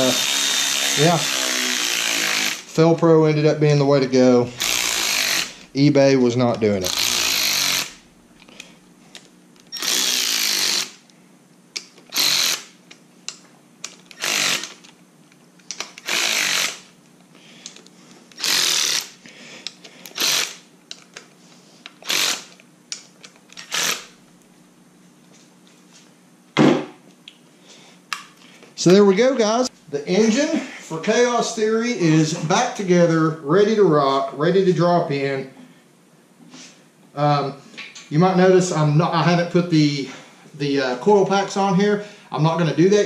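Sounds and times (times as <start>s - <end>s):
electric ratchet running: 0.0s - 2.7s, 4.5s - 5.8s, 6.7s - 8.1s, 9.7s - 11.0s, 12.1s - 12.8s, 14.1s - 14.9s, 15.9s - 16.9s, 18.4s - 19.2s, 20.0s - 20.6s, 22.0s - 22.6s, 23.6s - 24.2s.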